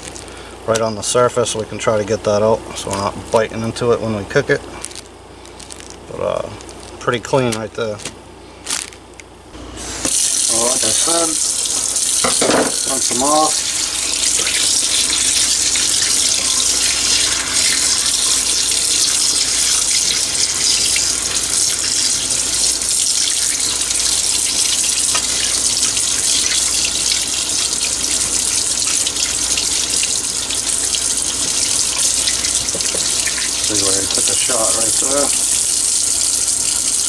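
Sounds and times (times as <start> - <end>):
faucet running into sink: 10.1 - 36.9.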